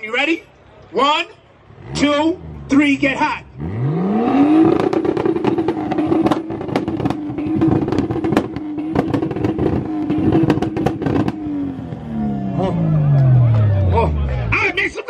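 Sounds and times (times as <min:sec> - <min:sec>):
car engine revving on limiter: 0:01.7 - 0:14.6
exhaust crackling and popping: 0:04.2 - 0:15.0.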